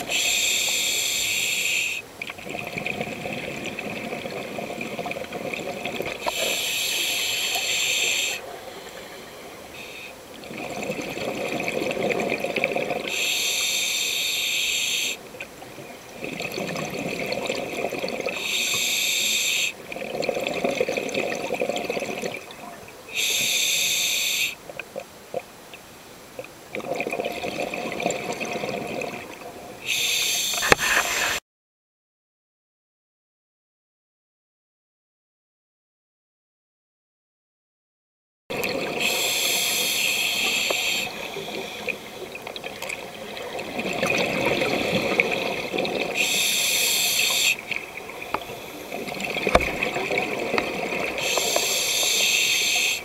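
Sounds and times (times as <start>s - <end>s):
regulator hissing inhale: 0.0s - 2.1s, 6.2s - 10.2s, 13.1s - 15.2s, 18.4s - 19.8s, 23.1s - 24.6s, 29.8s - 31.4s, 39.0s - 42.3s, 46.2s - 49.0s, 51.2s - 53.0s
exhaled bubbles rumbling: 41.2s - 46.2s, 47.8s - 51.3s.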